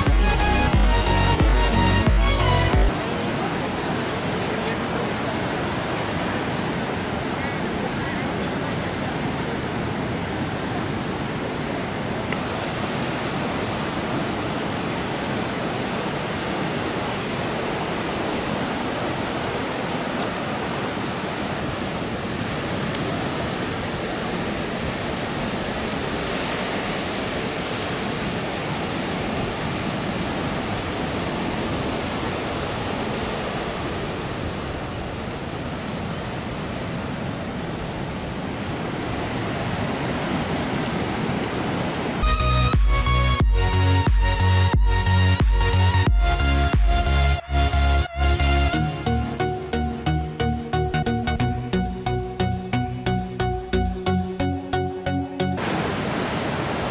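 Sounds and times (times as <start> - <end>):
ocean surf breaking on beach: 2.9 - 42.2, 55.6 - 56.9.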